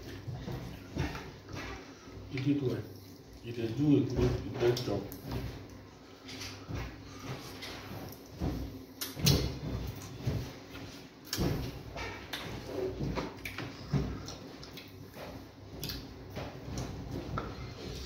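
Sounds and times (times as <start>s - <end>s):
chewing: 12.3s - 15.2s.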